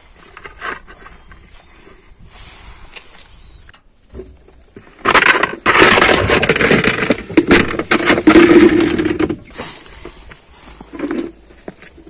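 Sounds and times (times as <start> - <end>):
tyres crackling on gritty pavement: 2.8 - 12.0.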